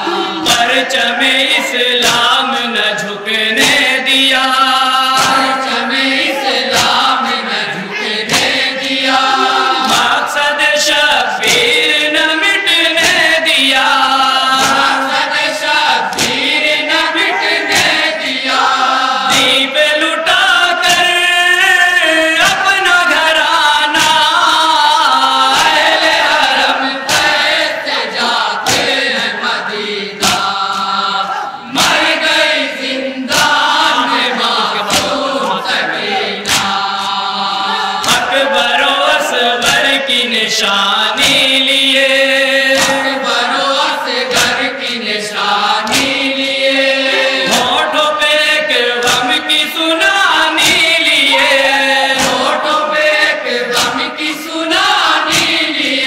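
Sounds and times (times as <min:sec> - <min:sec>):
men chanting a lament: 0:00.0 - 0:56.0
hands slapping chests: 0:00.4 - 0:02.4, 0:03.6 - 0:04.0, 0:05.1 - 0:07.4, 0:08.2 - 0:10.3, 0:11.4 - 0:11.8, 0:13.0 - 0:13.3, 0:14.5 - 0:19.6, 0:22.4 - 0:22.7, 0:23.9 - 0:24.4, 0:25.4 - 0:31.0, 0:31.7 - 0:40.0, 0:41.1 - 0:41.6, 0:42.7 - 0:43.4, 0:44.2 - 0:44.9, 0:45.6 - 0:46.5, 0:47.4 - 0:47.8, 0:49.0 - 0:49.4, 0:50.5 - 0:55.9.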